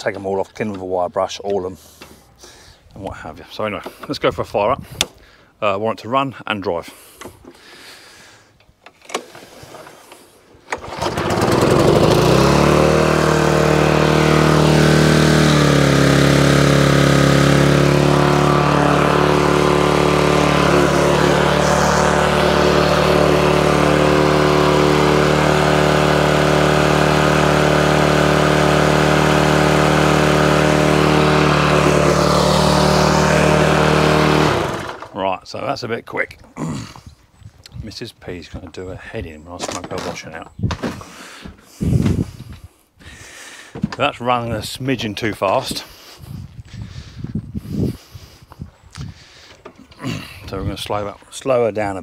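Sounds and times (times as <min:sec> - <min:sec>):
lawnmower engine starting and running: 0:08.8 - 0:35.4.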